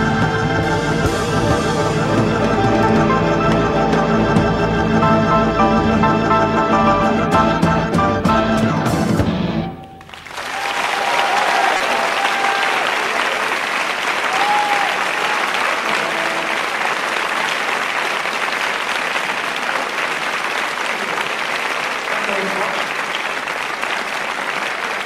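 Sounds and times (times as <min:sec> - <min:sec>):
band music: 0:00.0 - 0:10.6, 0:15.5 - 0:17.4
audience applauding: 0:09.7 - 0:25.0
cheers: 0:10.0 - 0:25.0.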